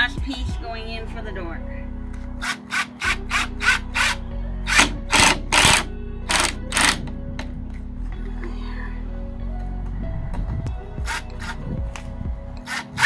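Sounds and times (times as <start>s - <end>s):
background music: 0.0s - 13.0s
cordless drill driving screws: 2.4s - 7.0s, 12.6s - 13.0s.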